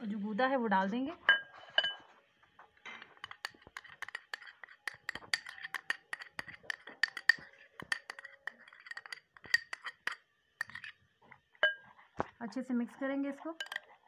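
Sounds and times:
dishes clinking against glass bowl: 1.3s - 2.1s, 3.0s - 10.9s, 11.6s - 11.8s, 13.6s - 14.0s.

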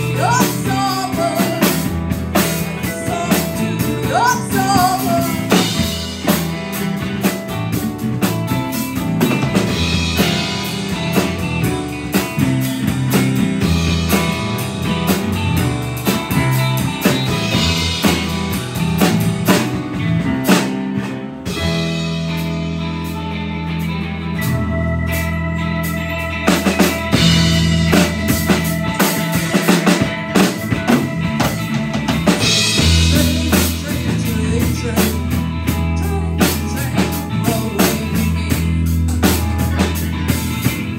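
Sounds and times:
rock band playing: 0.0s - 40.9s
drum strikes: 26.5s - 33.8s.

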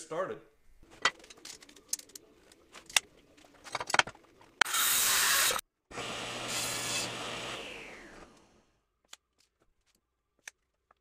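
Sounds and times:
table saw running: 4.6s - 8.6s.

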